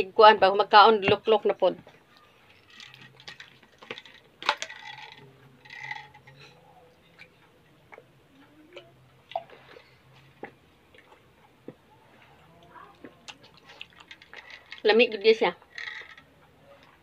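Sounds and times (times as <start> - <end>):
person gulping water: 8.8 - 10.0.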